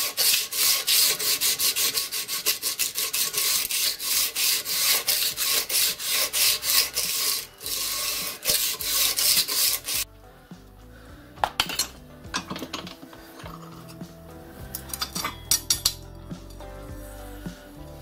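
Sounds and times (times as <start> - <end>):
file scraping on brass: 0.0 - 10.0
metallic clinks of tool: 14.8 - 16.6.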